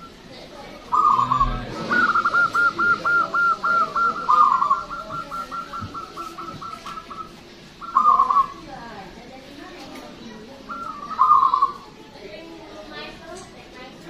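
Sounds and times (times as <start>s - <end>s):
dove cooing: 0.8s - 8.7s, 10.6s - 11.9s.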